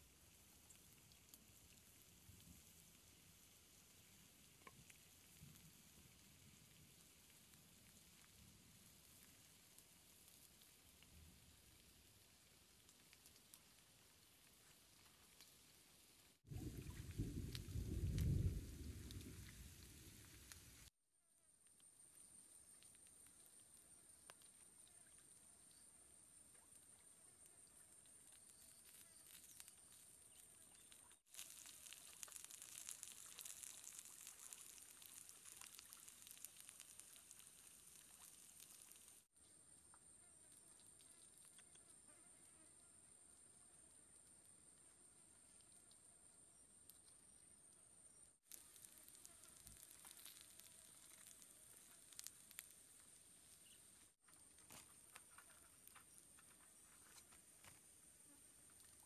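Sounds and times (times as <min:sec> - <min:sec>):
dense crackle of small pops: 0:00.0 - 0:42.0, 0:43.7 - 0:47.4, 0:48.1 - 0:59.0
meat sizzling on hot stone: 0:28.4 - 0:39.3, 0:48.4 - 0:54.2.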